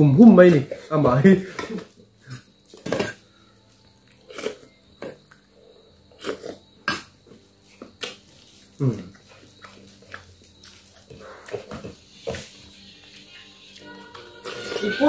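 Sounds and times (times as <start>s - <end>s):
mouth eating sounds: 4.1s - 5.4s, 6.1s - 12.0s.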